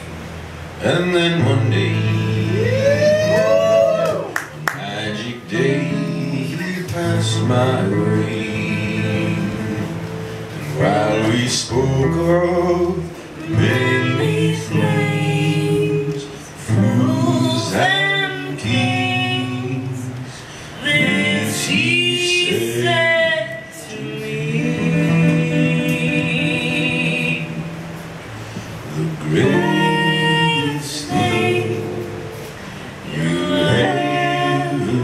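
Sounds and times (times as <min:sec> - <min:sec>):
woman and man singing together: 0:00.8 - 0:28.0, 0:28.6 - 0:35.0
acoustic guitar fingerpicking: 0:04.7 - 0:35.0.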